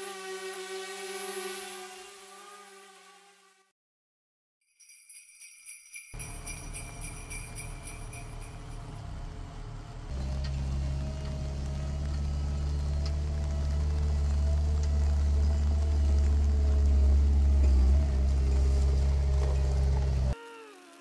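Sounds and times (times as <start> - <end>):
sleigh bells jingling: 4.6 - 9.0
low rumbling hum: 6.2 - 20.4.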